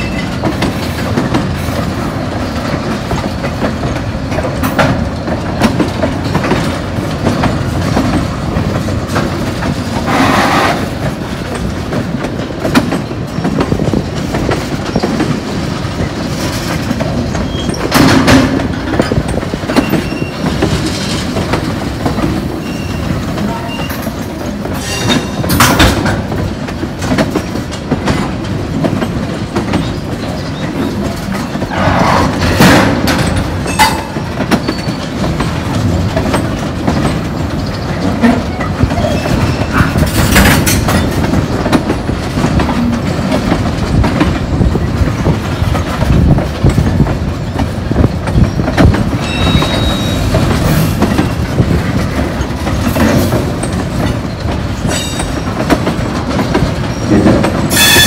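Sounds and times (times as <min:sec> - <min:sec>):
train cars rumbling over track: 0:00.0 - 0:58.0
wheels screeching: 0:10.0 - 0:11.1.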